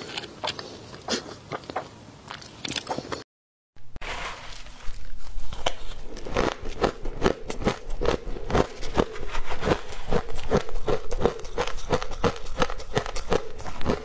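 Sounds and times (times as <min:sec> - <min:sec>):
crisp crunching of ice: 0:04.2 - 0:14.0.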